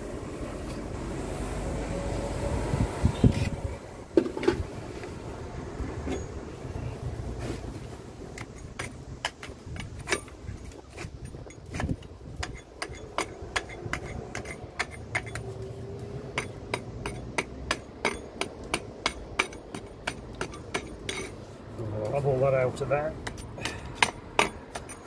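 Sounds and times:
hammer tapping mortar: 23.2s - 25.0s.

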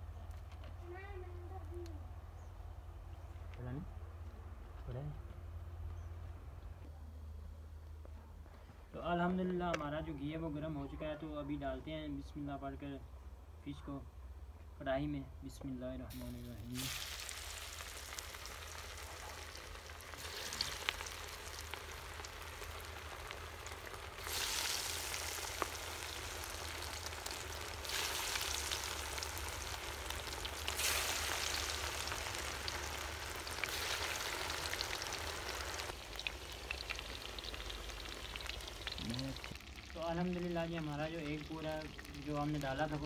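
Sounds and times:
fish deep-frying in oil: 16.1s - 43.0s.

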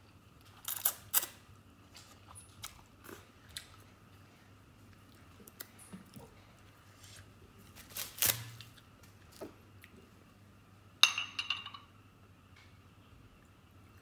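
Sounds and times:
glass bottle clinking on glass: 11.0s - 11.9s.

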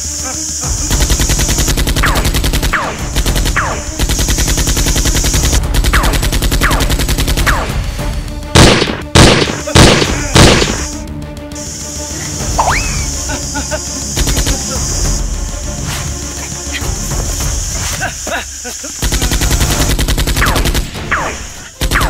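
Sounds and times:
automatic gunfire bursts: 0.8s - 7.9s, 8.6s - 10.9s, 14.2s - 14.7s, 19.0s - 22.0s
loud single gunshots: 8.6s - 10.9s.

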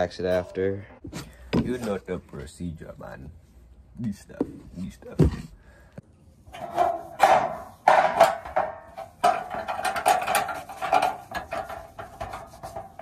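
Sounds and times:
foam pad rubbing on metal: 6.7s - 13.0s.

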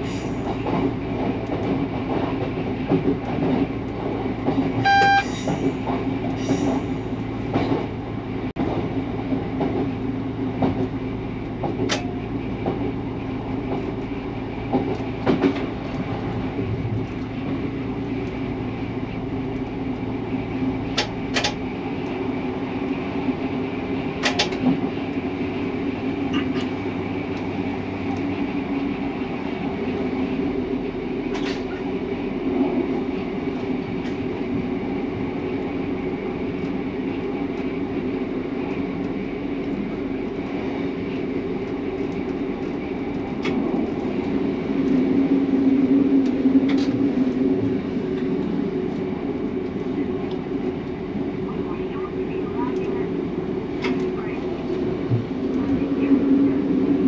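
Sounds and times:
diesel train engine drone: 0.0s - 57.0s
wheels rumbling on rails: 0.0s - 57.0s
short beep: 4.8s - 5.3s.

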